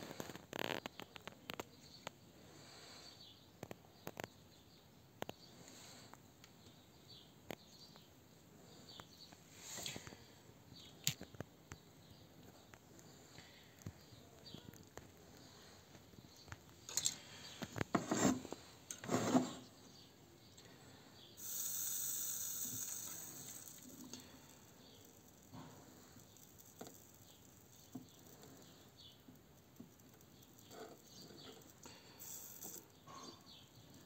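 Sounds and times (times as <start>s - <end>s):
rubbing and scraping: 17.2s - 19.8s
soldering iron sizzling: 21.4s - 33.2s.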